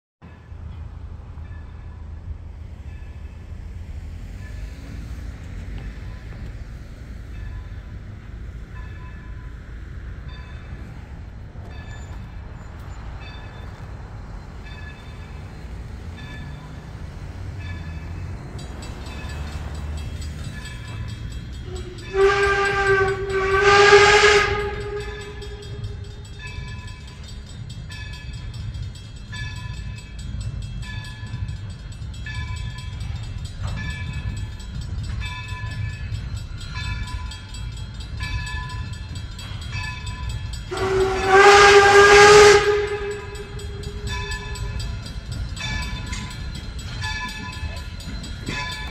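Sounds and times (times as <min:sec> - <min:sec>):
engine rumble: 0:00.3 - 0:48.9
locomotive bell ringing: 0:04.3 - 0:48.9
steam whistle blasts: 0:21.6 - 0:26.1, 0:40.7 - 0:44.8.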